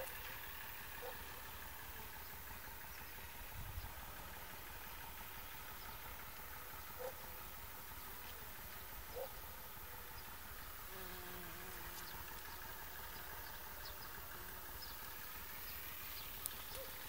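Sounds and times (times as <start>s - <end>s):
steady outdoor hiss: 0.0s - 17.0s
bee flying close: 10.8s - 12.5s
bees buzzing: 10.8s - 17.0s.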